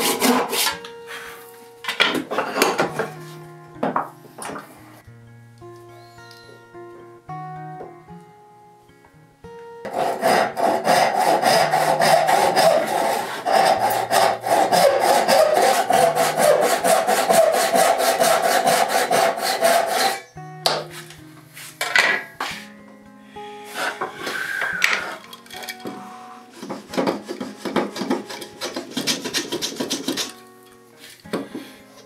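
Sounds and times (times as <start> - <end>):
saw cutting wood: 0.0 - 0.8, 9.9 - 20.3, 26.5 - 30.3
soft background music: 0.0 - 32.0.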